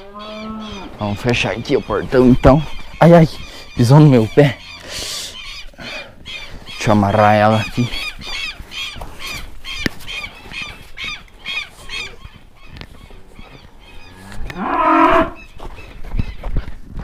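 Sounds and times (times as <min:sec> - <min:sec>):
cow mooing: 0:00.0 - 0:00.9, 0:14.1 - 0:15.4
bird calling repeatedly: 0:00.0 - 0:15.6.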